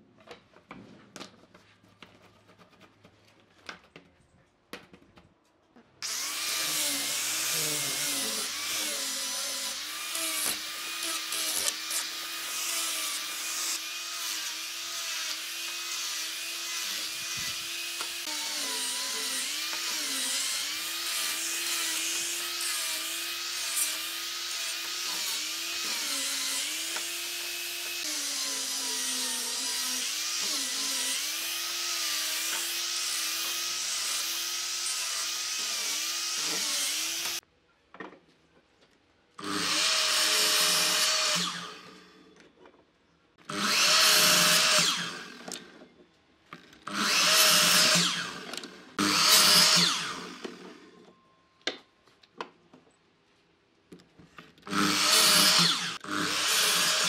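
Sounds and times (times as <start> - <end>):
angle grinder sanding wood: 6.0 - 37.4, 39.4 - 42.0, 43.5 - 45.6, 46.9 - 50.7, 54.7 - 57.0
miter saw cutting wood: 6.0 - 37.4, 39.4 - 42.3, 43.4 - 45.8, 46.8 - 51.0, 54.7 - 57.0.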